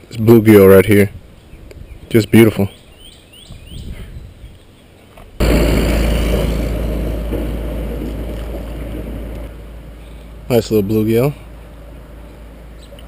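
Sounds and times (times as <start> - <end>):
wind buffeting microphone: 1.0 - 2.3, 2.9 - 4.7, 5.4 - 9.6.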